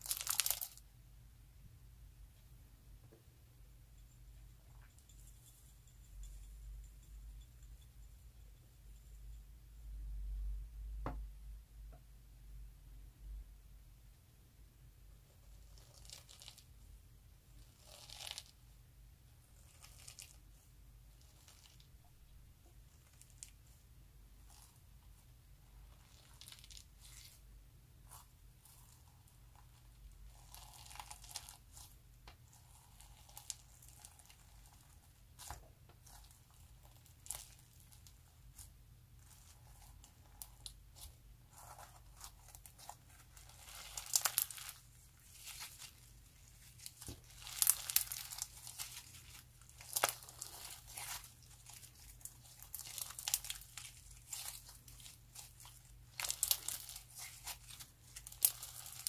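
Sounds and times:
slime crinkling and crackling: 0.0 - 0.8, 15.5 - 16.6, 17.6 - 18.5, 19.6 - 20.4, 21.2 - 21.9, 24.4 - 27.4, 28.0 - 59.0.

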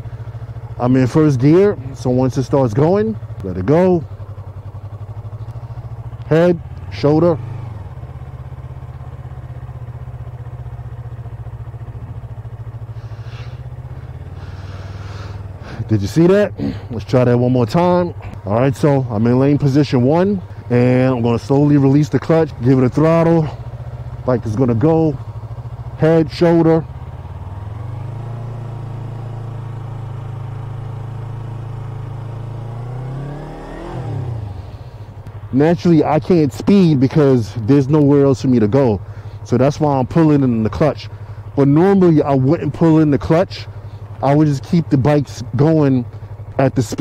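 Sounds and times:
motorcycle engine near idle: 0.0 - 47.0.

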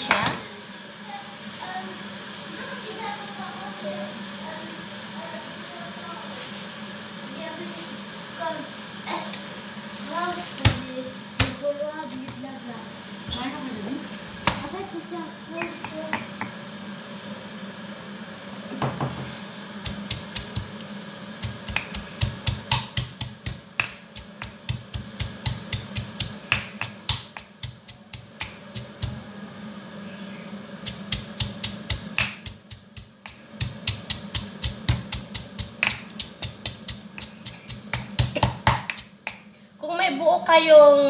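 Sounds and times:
pestle pounding in a mortar: 19.8 - 20.8, 21.4 - 29.2, 30.8 - 39.5.

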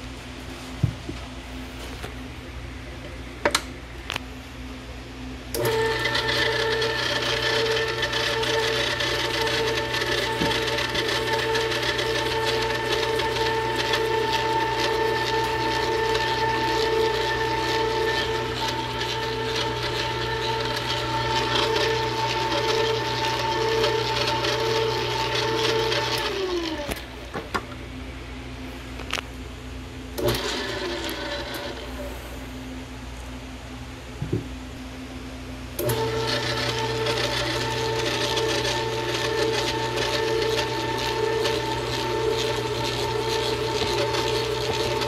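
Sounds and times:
mixer clicks: 5.5 - 27.6, 35.8 - 45.0
stand mixer motor whining: 5.5 - 27.6, 30.2 - 32.1, 35.8 - 45.0
beater churning dough: 5.6 - 27.4, 30.2 - 32.1, 35.8 - 45.0.

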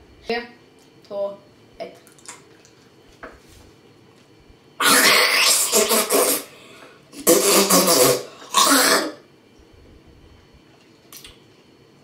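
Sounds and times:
boy gagging and retching: 4.8 - 6.5, 7.2 - 9.2.

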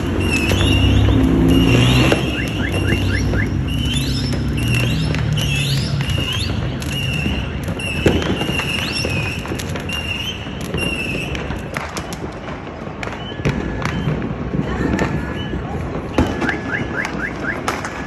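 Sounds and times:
fireworks popping and banging: 0.0 - 18.0
car alarm tone: 0.4 - 4.2, 16.2 - 17.9.

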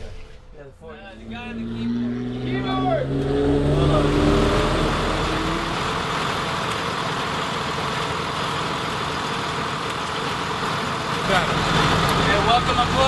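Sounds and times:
bus engine idling: 4.8 - 13.0.

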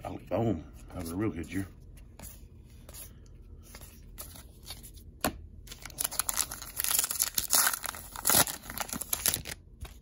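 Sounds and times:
cards being handled: 0.9 - 10.0
wrapper crinkling and tearing: 5.7 - 10.0.

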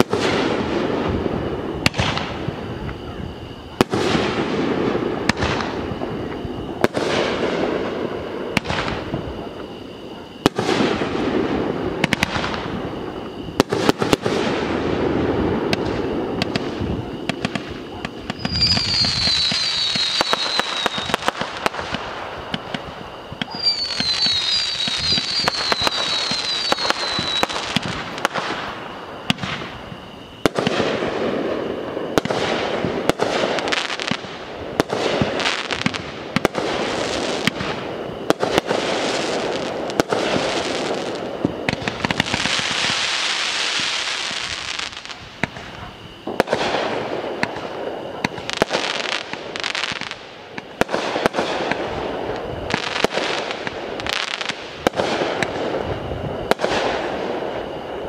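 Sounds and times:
firework whistles: 0.0 - 58.0
fireworks popping and banging: 1.8 - 3.1, 3.8 - 7.7, 12.0 - 12.7, 15.4 - 29.8, 32.2 - 57.3.

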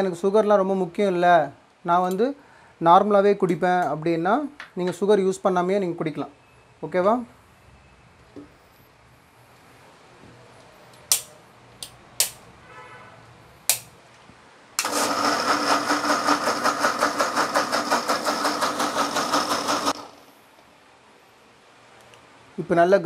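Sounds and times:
mixer grinder motor pulsing: 14.8 - 20.2.

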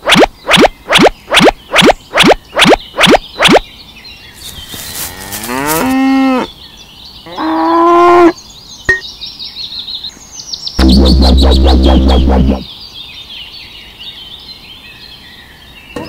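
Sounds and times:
faint bird chirps: 0.0 - 5.2
cow mooing: 5.1 - 6.5, 7.3 - 8.3.

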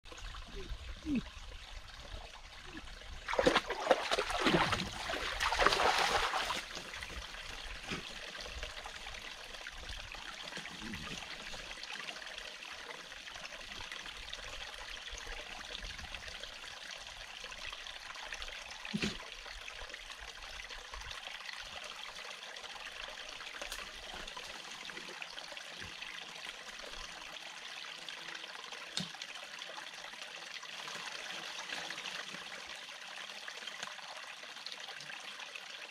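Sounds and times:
stream trickling: 0.0 - 35.9
dog splashing in water: 3.3 - 6.7.

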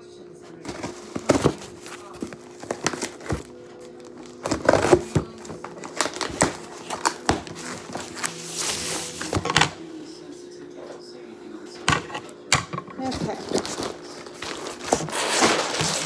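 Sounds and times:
plastic packaging crinkling: 0.6 - 9.5, 13.0 - 16.0.

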